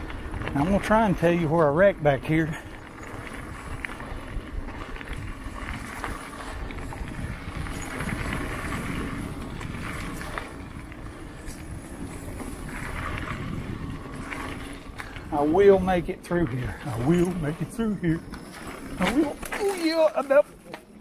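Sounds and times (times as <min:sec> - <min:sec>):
bike rattling and knocking: 0:00.0 - 0:21.0
bike tyres on dirt: 0:00.0 - 0:21.0
wind on microphone: 0:02.8 - 0:15.3.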